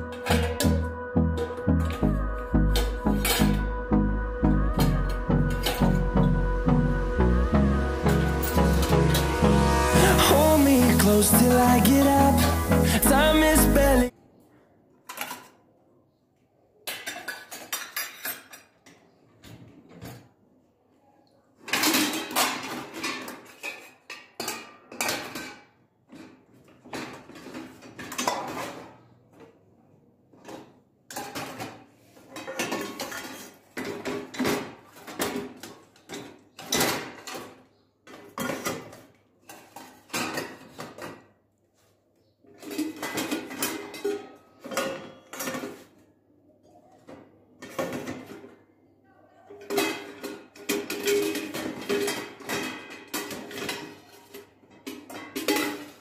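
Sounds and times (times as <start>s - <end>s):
pots and pans clattering: 0.0s - 0.8s, 16.9s - 18.8s, 21.7s - 29.0s, 30.4s - 41.2s, 42.5s - 46.0s, 47.1s - 48.6s, 49.6s - 56.0s.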